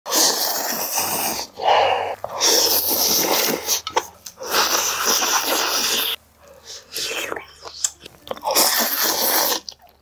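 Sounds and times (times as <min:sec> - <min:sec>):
man slurping noodles: 0:00.1 - 0:09.7.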